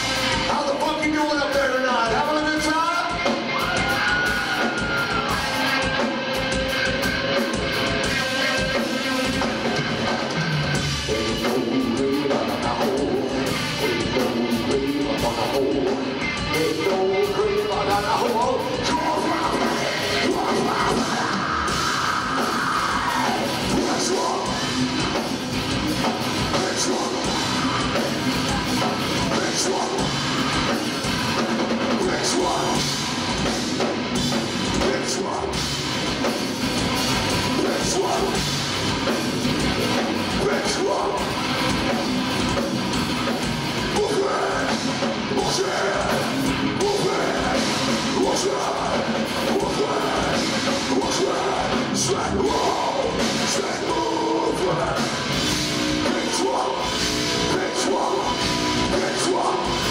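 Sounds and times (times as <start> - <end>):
distorted electric guitar: 0.0 - 59.9
drum kit: 0.0 - 59.9
person singing: 11.0 - 24.7, 26.0 - 30.8, 31.9 - 33.0, 37.3 - 38.6, 40.0 - 41.9, 43.8 - 59.9.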